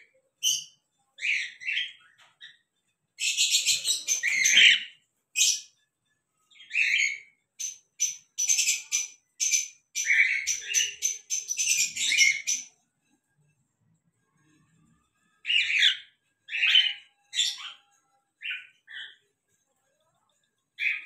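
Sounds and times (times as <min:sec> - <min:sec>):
cockatiel chirping: 0:06.5 - 0:12.7, 0:15.5 - 0:17.8.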